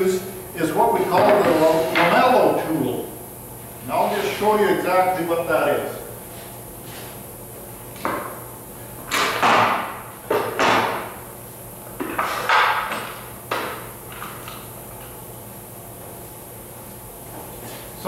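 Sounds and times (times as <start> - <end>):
objects knocking and clunking: 9.1 - 11.1.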